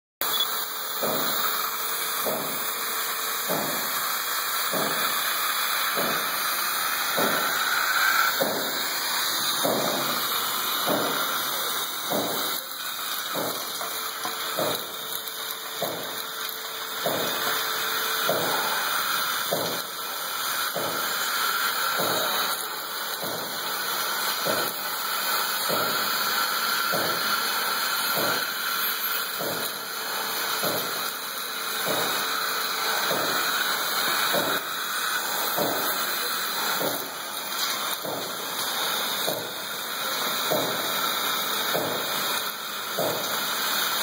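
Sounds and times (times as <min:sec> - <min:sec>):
industrial vacuum cleaner hissing: 0:00.2 - 0:44.0.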